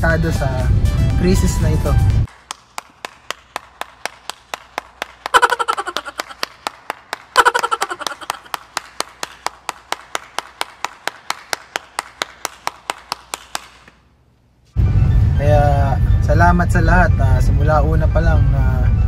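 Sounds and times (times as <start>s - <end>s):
person clapping: 2.3s - 14.1s.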